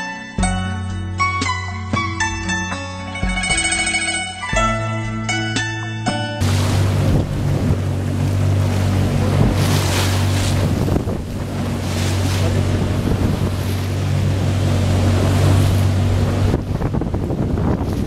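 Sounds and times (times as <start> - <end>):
boat engine humming: 0.0 - 18.0
choppy sea splashing: 6.4 - 18.0
wind buffeting microphone: 6.4 - 18.0.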